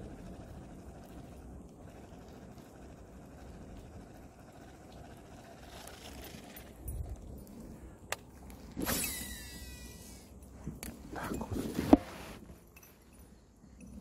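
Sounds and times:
fishing reel whirring: 0:00.0 - 0:07.3, 0:08.8 - 0:10.4.

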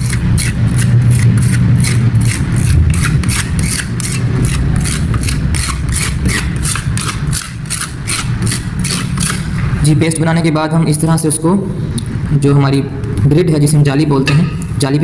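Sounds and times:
scraper scratching on metal grid: 0:00.0 - 0:09.6
low machine hum: 0:00.0 - 0:15.0.

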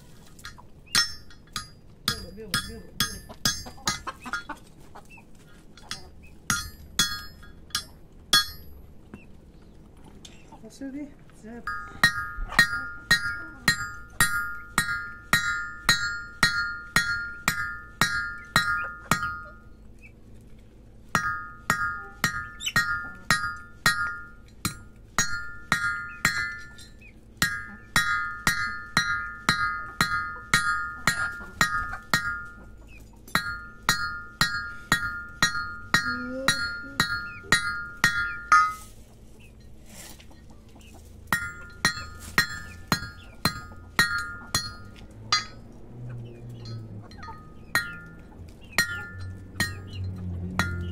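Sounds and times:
hammer striking metal punch: 0:00.9 - 0:04.5, 0:05.9 - 0:08.7, 0:11.7 - 0:19.6, 0:21.2 - 0:32.6, 0:33.3 - 0:38.8, 0:41.3 - 0:45.6, 0:46.6 - 0:50.0, 0:50.6 - 0:50.9.

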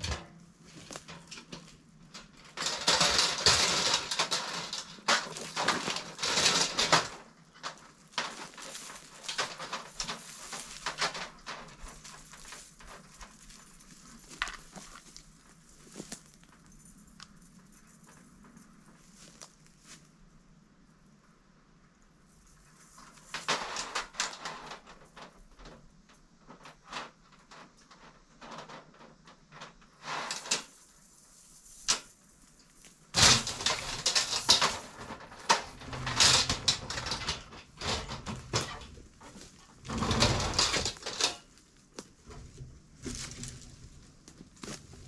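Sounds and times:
knocks and scrapes: 0:00.0 - 0:20.0, 0:22.6 - 0:25.8, 0:26.4 - 0:45.0
brush and leaves rustling: 0:00.0 - 0:20.3, 0:22.3 - 0:25.3, 0:30.0 - 0:45.0.

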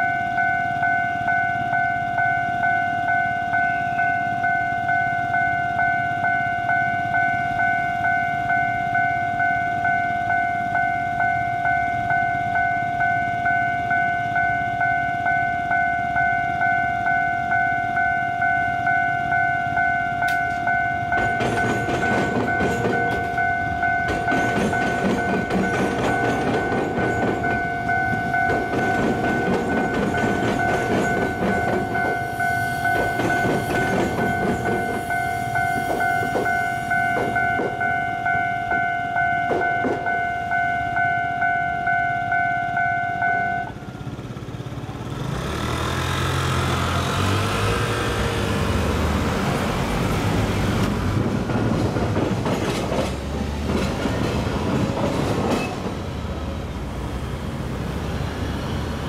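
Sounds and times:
level crossing bell ringing: 0:00.0 - 0:43.8
train wheels clacking on rail joints: 0:20.2 - 0:40.2, 0:45.4 - 0:56.6
car and bus engines: 0:43.6 - 0:59.0.

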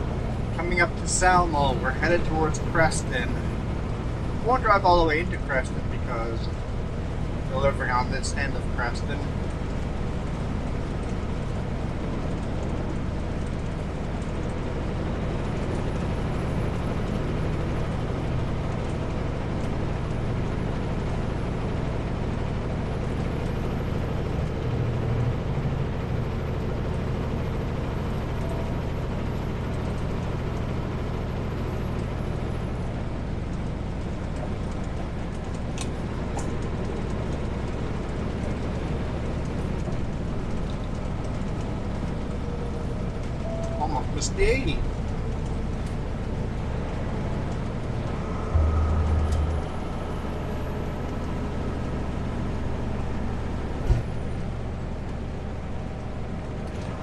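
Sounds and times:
diesel truck engine drone: 0:00.0 - 0:57.0
tyre and road noise: 0:00.0 - 0:57.0.

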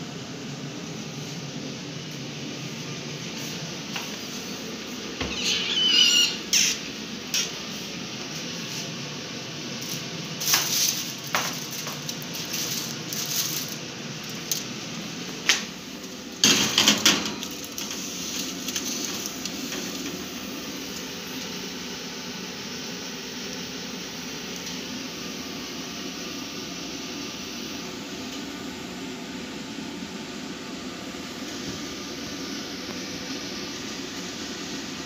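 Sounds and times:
steady low hum: 0:00.0 - 0:35.0
oven door opening: 0:05.2 - 0:06.9
metal baking tray clattering: 0:16.4 - 0:17.5.

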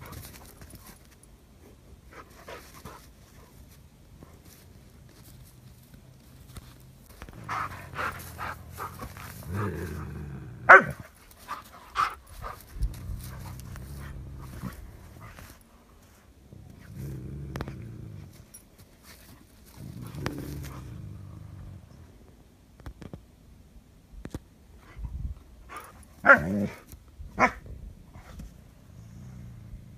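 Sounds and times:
animals growling: 0:07.2 - 0:11.0, 0:12.0 - 0:15.6, 0:16.4 - 0:18.6, 0:19.7 - 0:22.2, 0:28.8 - 0:29.9.

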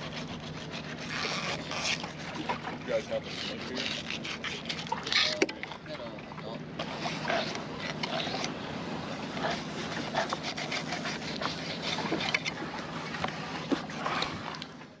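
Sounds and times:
knife scraping fish skin: 0:00.0 - 0:05.5, 0:06.8 - 0:08.6, 0:09.4 - 0:12.6.

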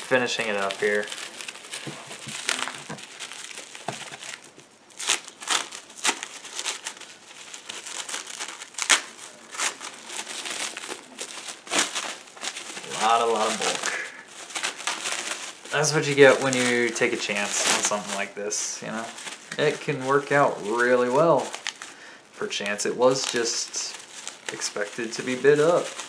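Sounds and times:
trading cards rustling and snapping: 0:00.3 - 0:18.2.

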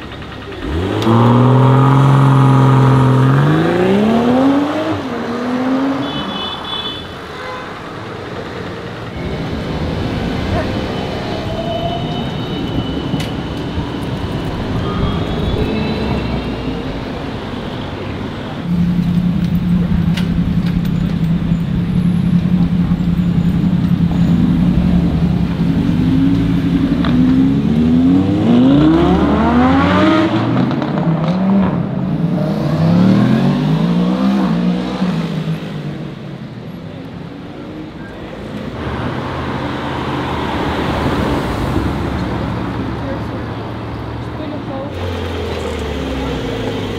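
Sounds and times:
sports car engine revving: 0:00.5 - 0:06.0.

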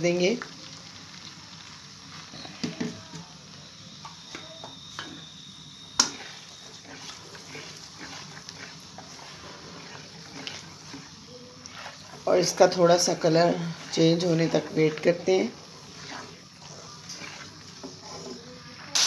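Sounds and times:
paste sizzling in hot oil: 0:00.0 - 0:19.0
spatula scraping pot: 0:06.0 - 0:19.0.

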